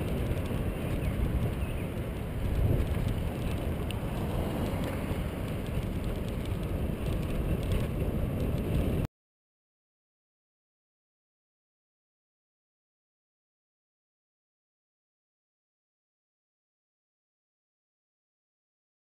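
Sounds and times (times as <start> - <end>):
bicycle tyres on pavement: 0.0 - 9.1
wind rumbling on microphone: 0.0 - 9.1.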